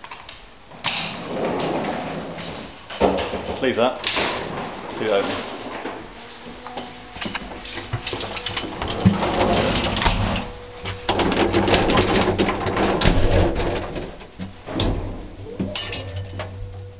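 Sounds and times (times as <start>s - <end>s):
lift car rattling: 0.0s - 16.9s
steady low hum: 3.9s - 16.9s.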